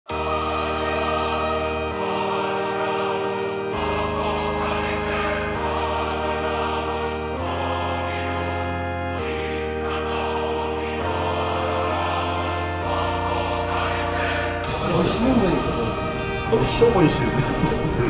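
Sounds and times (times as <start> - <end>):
choir singing sustained chords: 0.1 - 18.0.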